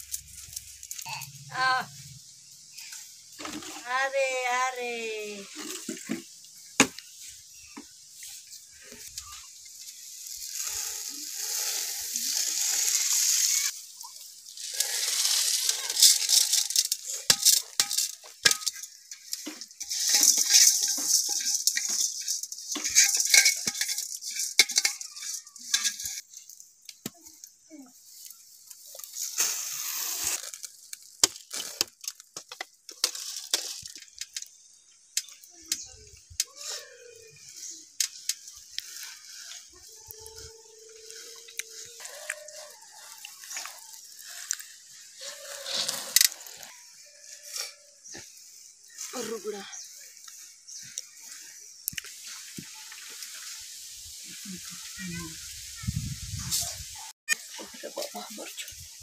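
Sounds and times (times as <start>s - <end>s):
hands spreading grain rustles: 0.0s - 32.4s, 35.3s - 59.0s
grain pouring hiss: 0.0s - 59.0s
pot clinking and rattling: 12.6s - 26.4s.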